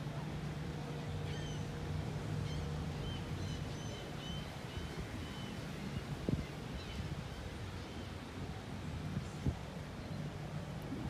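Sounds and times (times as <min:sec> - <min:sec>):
ship low hum: 0:00.0 - 0:11.0.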